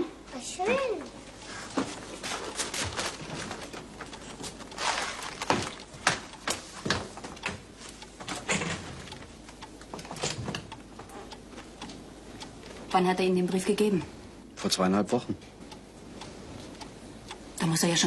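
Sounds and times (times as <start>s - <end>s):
paper crinkling and rustling: 2.2s - 5.8s.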